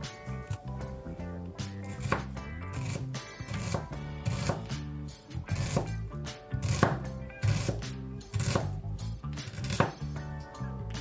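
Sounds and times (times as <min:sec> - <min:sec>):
background music: 0:00.0 - 0:11.0
knife slicing onion on board: 0:01.6 - 0:04.9, 0:05.5 - 0:06.0, 0:06.6 - 0:08.8, 0:09.4 - 0:10.2.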